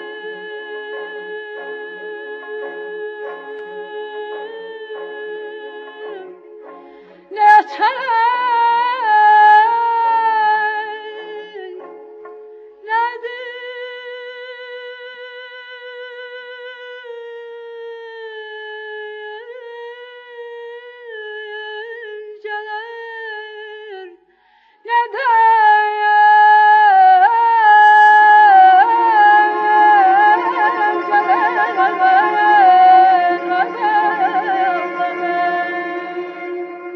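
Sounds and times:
folk song with vibrato: 0.0s - 36.9s
musical accompaniment: 28.8s - 36.9s.

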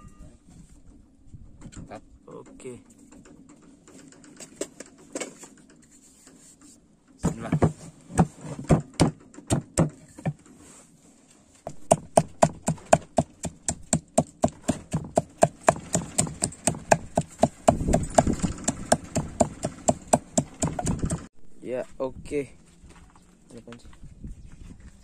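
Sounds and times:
pestle pounding in wooden mortar: 7.2s - 10.4s, 11.7s - 21.3s.

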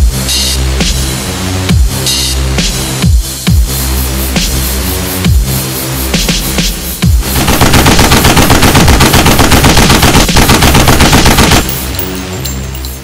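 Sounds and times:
electronic music: 0.0s - 7.4s
machine-gun fire: 7.2s - 11.8s.

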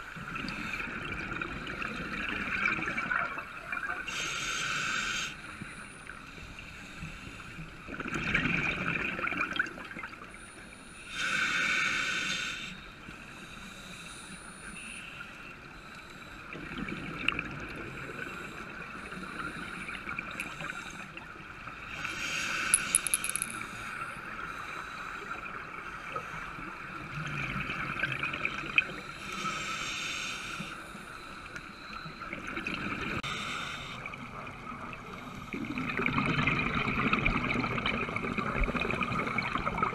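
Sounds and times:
small clicks: 22.7s - 23.8s.

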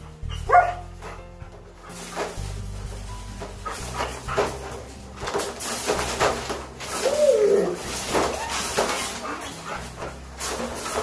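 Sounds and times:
wire dog crate clanking: 0.0s - 11.0s
dog whining: 0.3s - 1.0s, 6.9s - 9.9s.

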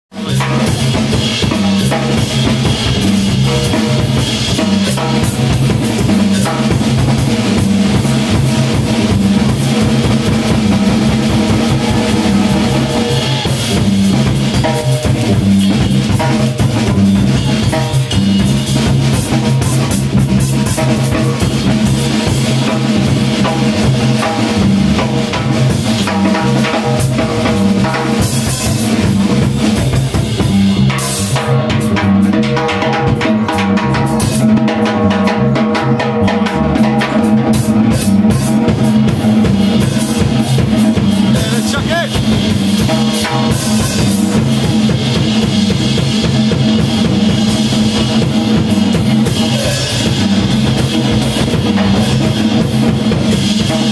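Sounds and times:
jazz drum kit: 0.1s - 53.9s.

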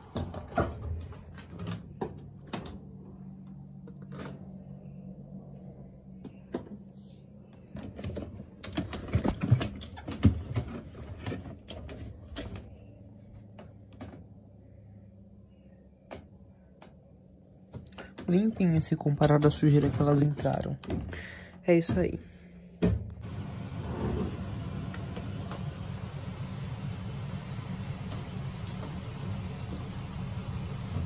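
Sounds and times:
laundry handled in washing machine: 0.0s - 3.4s, 7.5s - 14.4s, 17.6s - 21.1s, 21.7s - 22.2s, 22.8s - 31.0s
low hum: 0.8s - 9.2s, 22.1s - 31.0s.

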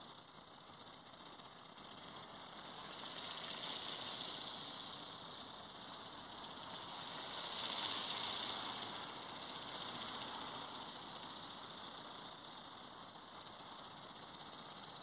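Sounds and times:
electric motor whine of flying model: 1.9s - 12.1s.

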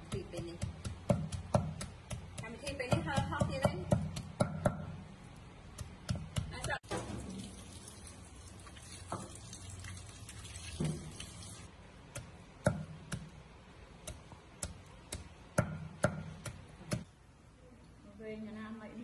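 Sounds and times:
cleaver chopping on wooden board: 0.6s - 4.9s
tap water running in a sink: 6.9s - 11.7s.

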